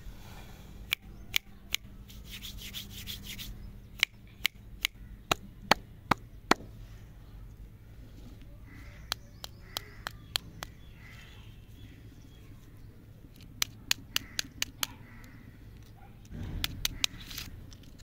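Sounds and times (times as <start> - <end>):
fingertips tapping on wrappers: 13.3 - 15.0, 16.6 - 18.0.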